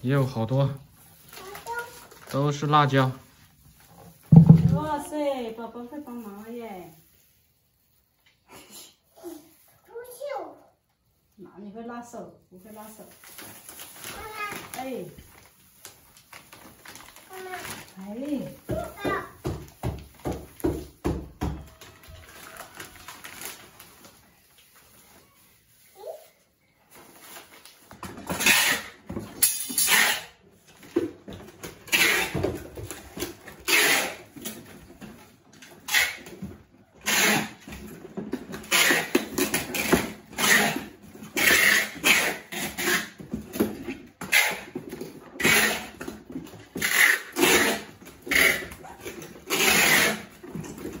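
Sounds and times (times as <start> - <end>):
packing tape screeching off roll: 1.1 - 3.2, 13.0 - 18.1, 21.6 - 29.1, 29.7 - 30.5, 31.6 - 51.0.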